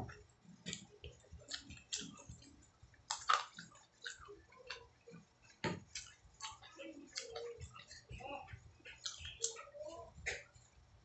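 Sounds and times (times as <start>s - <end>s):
mouth chewing smacks and clicks: 0.6s - 8.0s, 8.8s - 9.7s.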